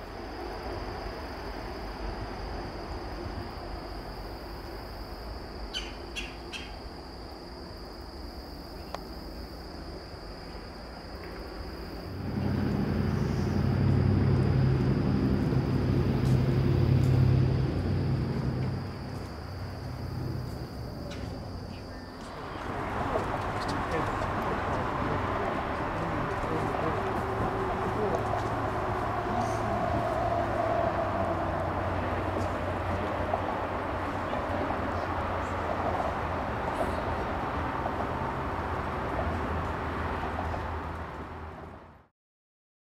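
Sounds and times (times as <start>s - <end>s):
passing vehicle engine hum: 11.1s - 42.1s.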